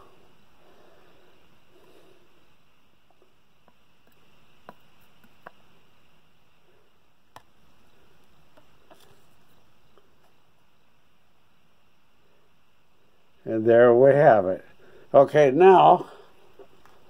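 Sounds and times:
low steady hiss: 0.0 - 17.0.

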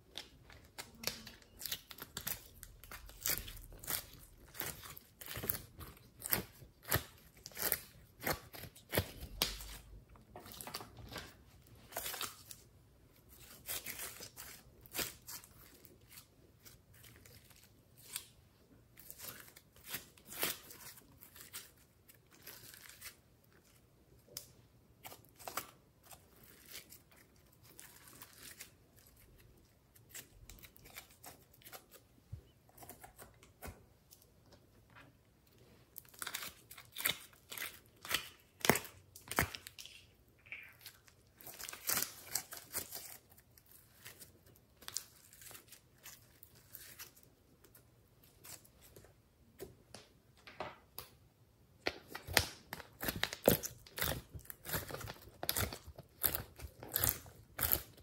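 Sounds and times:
slime clicking and crackling: 52.0 - 58.0.

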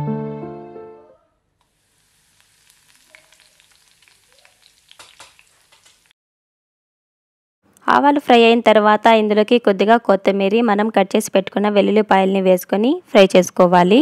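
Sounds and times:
background music: 0.0 - 1.2
hot oil sizzling and crackling: 1.6 - 6.1.

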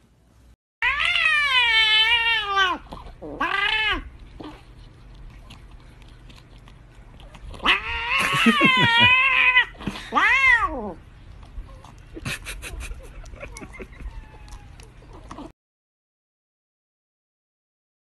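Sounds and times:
cat yowling: 0.8 - 4.1, 7.6 - 11.0, 13.9 - 14.9.

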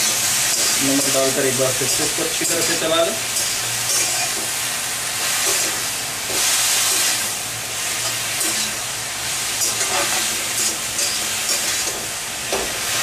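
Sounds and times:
vegetables sizzling in hot oil: 0.0 - 13.0
metal spatula scraping pan: 9.6 - 12.0.

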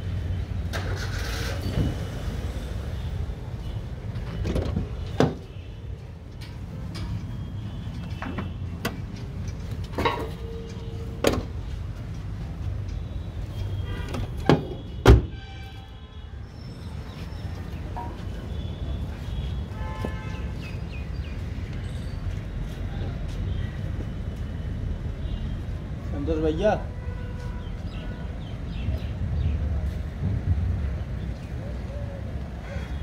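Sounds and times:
sharp knocks and clanks: 8.1 - 11.5.

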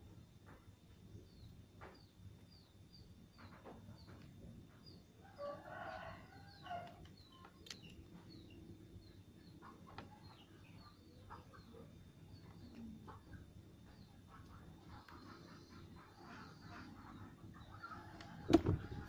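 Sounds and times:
rooster crowing: 5.2 - 7.0.

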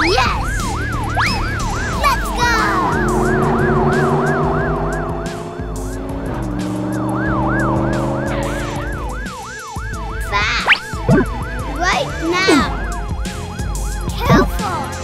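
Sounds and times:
ambulance siren wailing: 0.0 - 15.0
low drone: 0.3 - 9.5.

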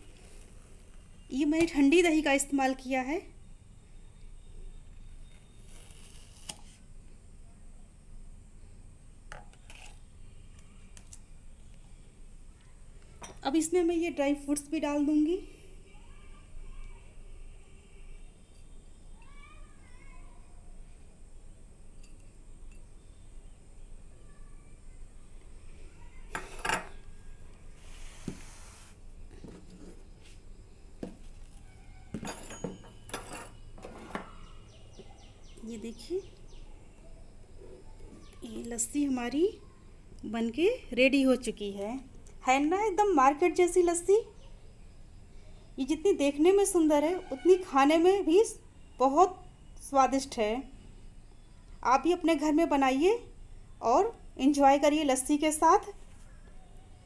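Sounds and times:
spoon scraping plastic tub: 9.6 - 10.0
spoon and dishes clinking: 22.0 - 22.9, 26.3 - 27.0, 32.1 - 34.4.

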